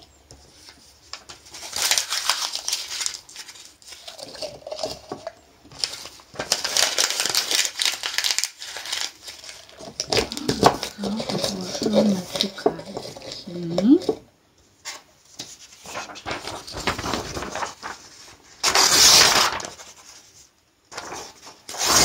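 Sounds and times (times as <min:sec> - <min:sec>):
paper crinkling: 0:00.4 - 0:14.0, 0:14.8 - 0:22.0.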